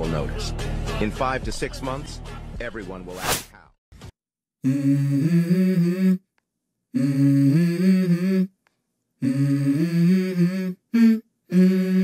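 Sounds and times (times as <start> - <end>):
low voice humming: 4.6 - 6.2, 6.9 - 8.5, 9.2 - 12.0.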